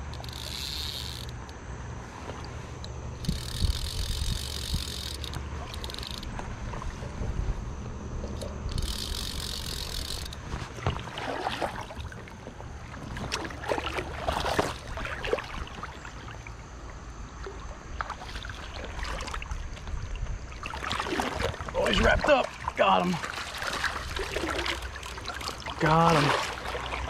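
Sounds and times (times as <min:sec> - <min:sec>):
steady low rumble: 0:01.4 - 0:11.1
water splashing: 0:09.0 - 0:27.0.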